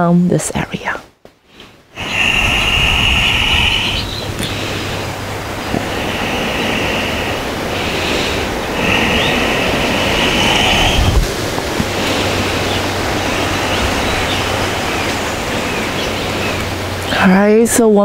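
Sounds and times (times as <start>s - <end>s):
high hiss: 1.6s - 17.5s
steady rushing noise: 1.6s - 18.0s
faint bird chirps: 2.0s - 4.6s, 8.6s - 11.1s
low hum: 2.0s - 17.7s.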